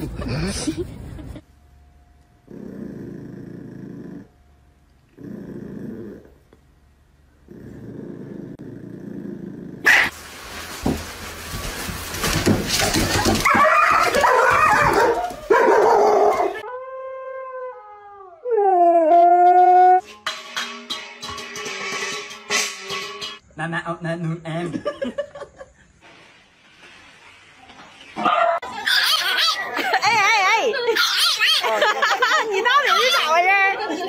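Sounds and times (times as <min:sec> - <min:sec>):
small dog growling: 0:02.4 - 0:04.4, 0:05.1 - 0:06.4, 0:07.4 - 0:09.9
dog barking and yelping: 0:09.9 - 0:10.1, 0:13.3 - 0:16.6, 0:28.2 - 0:29.9, 0:30.9 - 0:31.8, 0:32.7 - 0:33.4
husky howling: 0:13.4 - 0:20.0.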